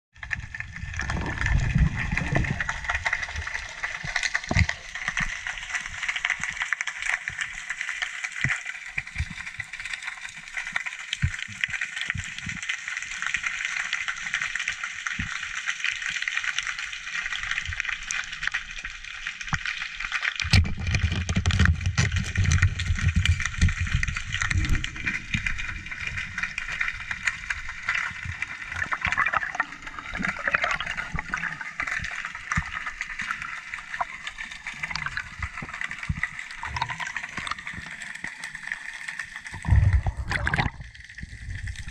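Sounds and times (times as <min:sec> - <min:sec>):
low churning rumble in water: 0:00.2 - 0:06.0, 0:20.5 - 0:37.8, 0:39.5 - 0:41.9.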